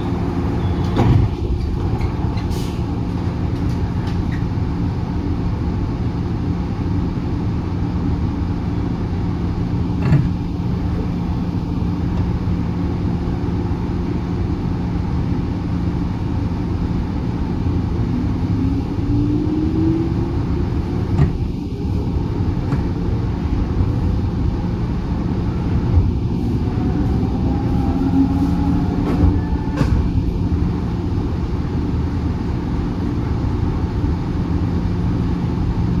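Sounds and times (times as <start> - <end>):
train motor and gear whine: 0.0 - 36.0
train wheel and rail rumble: 0.0 - 36.0.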